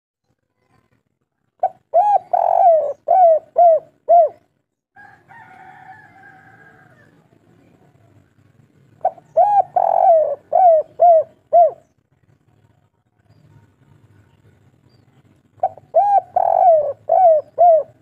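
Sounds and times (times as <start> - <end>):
dove cooing: 1.6 - 4.5, 9.0 - 11.9, 15.5 - 18.0.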